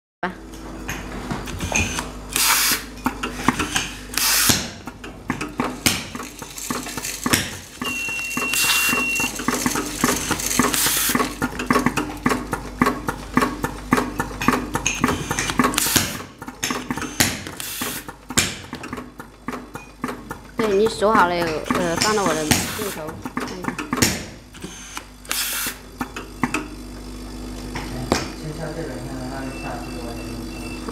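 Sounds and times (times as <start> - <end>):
steady machine hum: 0.2 - 30.9
compressed air hissing: 3.7 - 4.6, 24.6 - 25.8
high beep: 7.8 - 9.3, 29.3 - 30.9.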